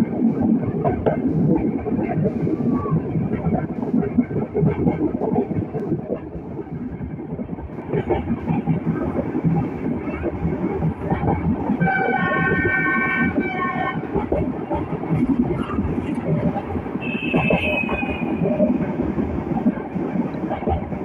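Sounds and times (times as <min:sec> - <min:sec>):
train wheels rattling on track: 0:00.0 - 0:21.0
locomotive horn: 0:11.8 - 0:14.0, 0:17.0 - 0:18.4.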